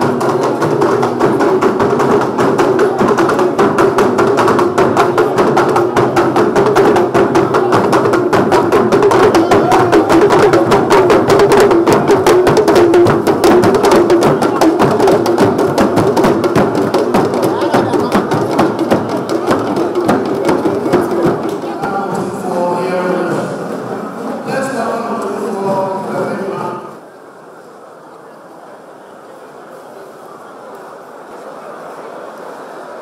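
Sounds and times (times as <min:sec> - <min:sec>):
fast loud drumming: 0:00.0 - 0:27.0.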